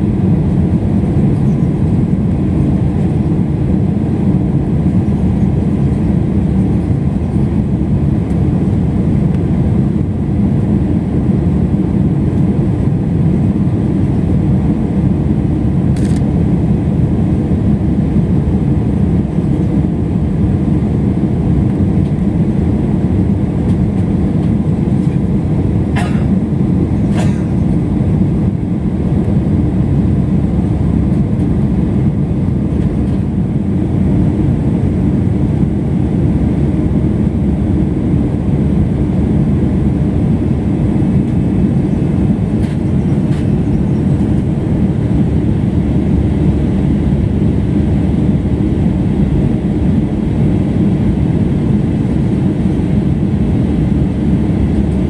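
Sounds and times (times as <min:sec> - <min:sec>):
jet engines and rushing air: 0:00.0 - 0:55.0.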